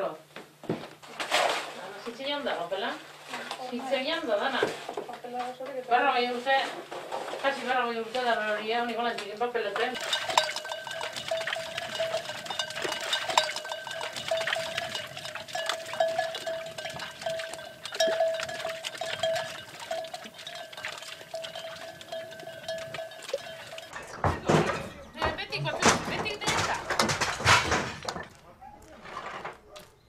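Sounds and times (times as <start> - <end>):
sheep bells ringing and clanking: 10.0 - 27.6.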